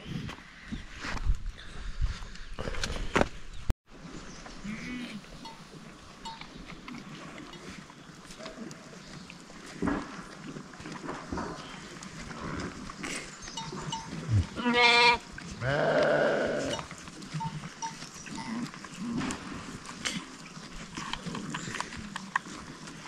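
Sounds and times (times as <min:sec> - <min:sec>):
herd shuffling: 0:03.9 - 0:23.0
goats bleating: 0:14.3 - 0:17.6.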